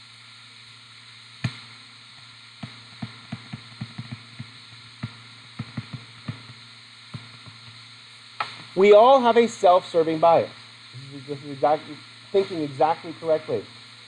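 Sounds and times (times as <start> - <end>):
steady electrical hum: 0.0 - 14.0
stylus tapping on touchscreen: 2.6 - 7.8.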